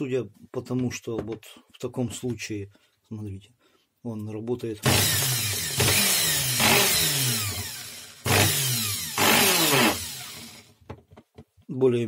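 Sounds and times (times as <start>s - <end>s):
electric screwdriver motor whirring: 4.8s - 10.7s.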